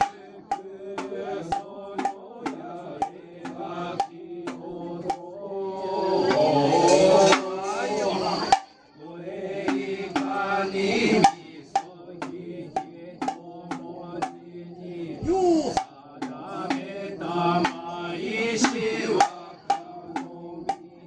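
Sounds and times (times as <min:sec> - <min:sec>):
drum struck steadily: 0:00.0 - 0:05.3, 0:08.5 - 0:08.8, 0:09.6 - 0:14.5, 0:15.8 - 0:17.0, 0:17.6 - 0:18.0, 0:18.6 - 0:21.0
man chanting: 0:00.0 - 0:21.0.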